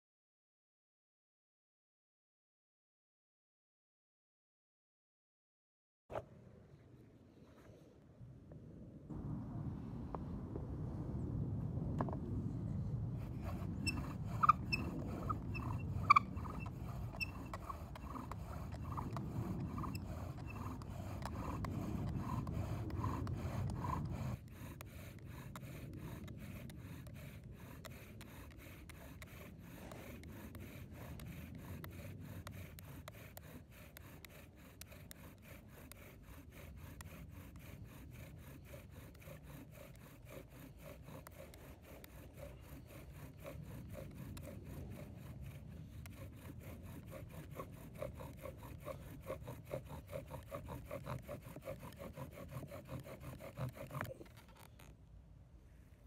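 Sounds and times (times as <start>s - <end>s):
bow drill spindle grinding: 13.3s - 54.9s.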